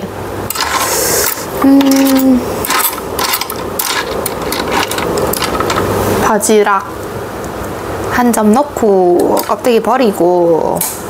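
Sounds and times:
utensils clicking on dishes: 0.5 - 5.9, 9.2 - 9.7.

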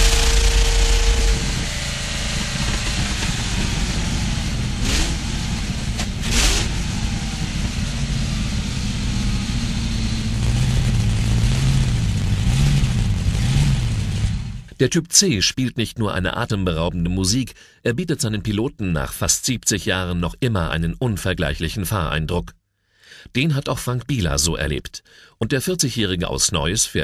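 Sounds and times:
racing car engine running: 0.0 - 14.7.

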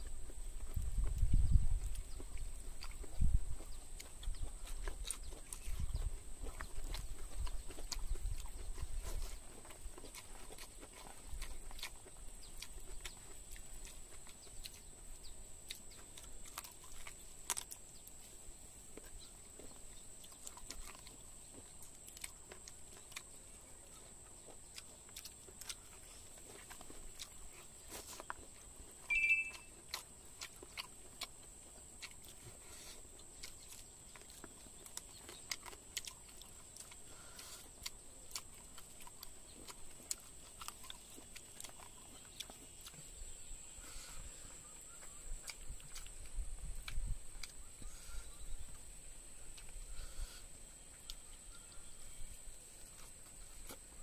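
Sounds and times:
person chewing food: 0.0 - 54.0
brief high chirp: 29.1 - 29.7.

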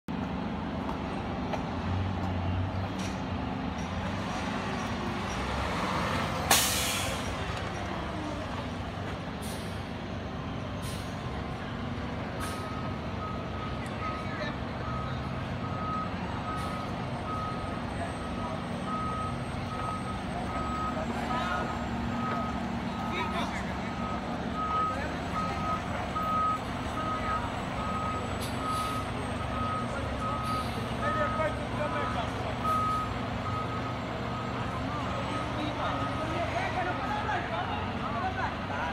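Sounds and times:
diesel engine rumble: 0.1 - 38.9
air brake hissing: 6.5 - 7.3, 9.4 - 9.8, 10.8 - 11.2
reversing alarm beeps: 12.6 - 36.4.

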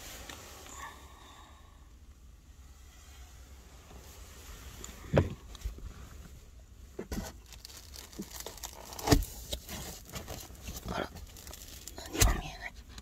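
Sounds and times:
rustling and handling noises: 2.7 - 13.0.

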